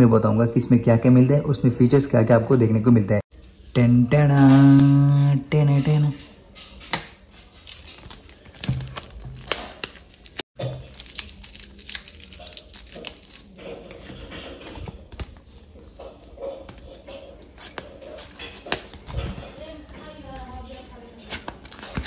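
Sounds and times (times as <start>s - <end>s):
plastic tape crinkling: 6.8s - 15.3s
card envelope handled: 7.6s - 13.4s.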